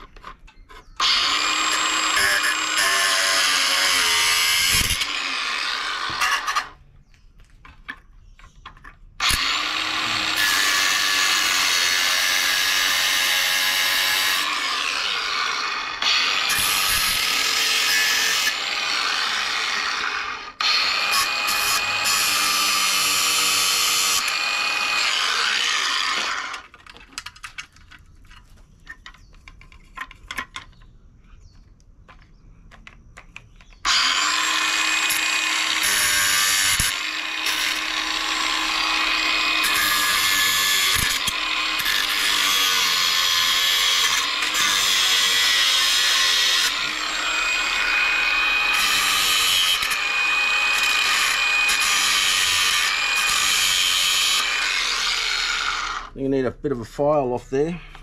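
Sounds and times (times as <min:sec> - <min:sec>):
angle grinder cutting steel: 0:00.9 - 0:06.8, 0:09.2 - 0:27.0, 0:33.8 - 0:56.2.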